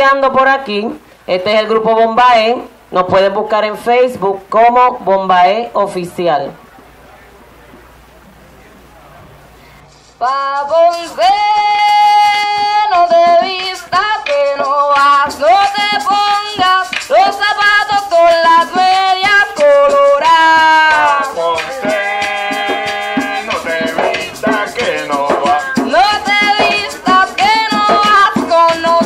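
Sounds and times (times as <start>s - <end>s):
rattling maraca: 9.6s - 29.0s
hand drums: 9.9s - 29.0s
person singing: 10.2s - 29.0s.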